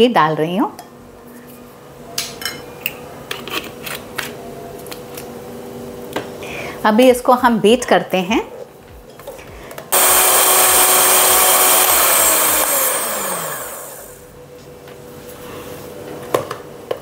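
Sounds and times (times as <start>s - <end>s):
electric hand mixer: 9.9s - 14.3s.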